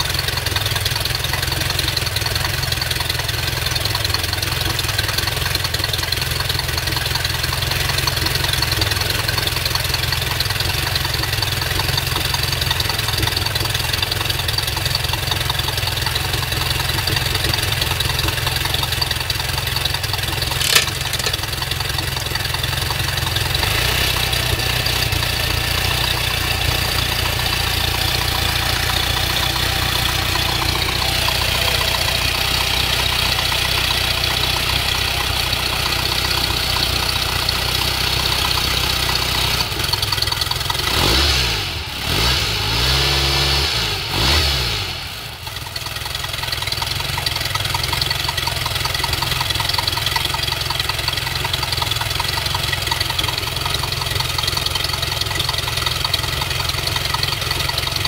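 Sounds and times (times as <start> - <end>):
boat engine idling: 0.0 - 40.9, 45.3 - 58.0
sharp click: 20.5 - 21.5.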